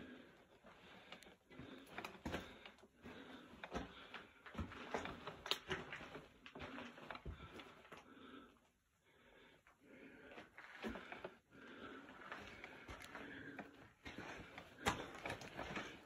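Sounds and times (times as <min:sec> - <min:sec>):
footsteps crunching on loose rock: 0:12.1 - 0:16.0.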